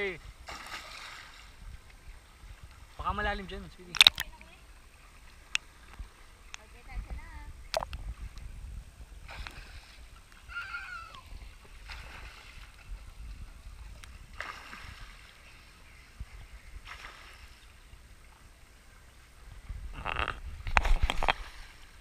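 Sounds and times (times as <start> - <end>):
short water splashes: 0.0 - 8.3, 9.2 - 17.8
water lapping and sloshing: 0.0 - 22.0.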